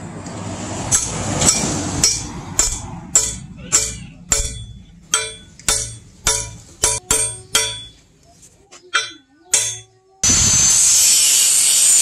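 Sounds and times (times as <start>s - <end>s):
hammer striking steel with metallic ring: 0.9s - 8.1s, 8.9s - 10.4s.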